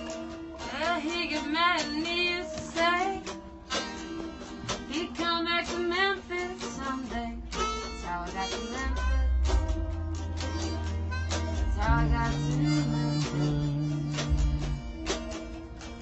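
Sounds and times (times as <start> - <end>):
strummed tenor guitar: 0.0 - 16.0
harmonica melody: 7.5 - 16.0.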